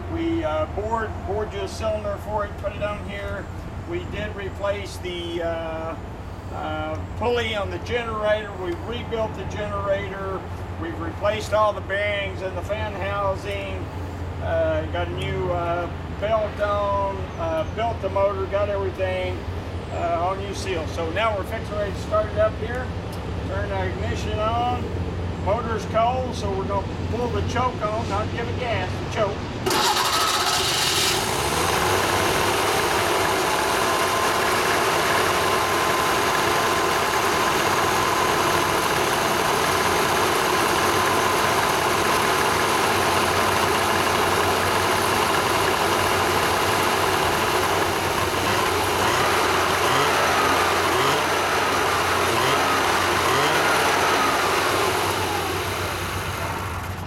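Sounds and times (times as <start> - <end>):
two-stroke engine running: 29.6 - 57.0.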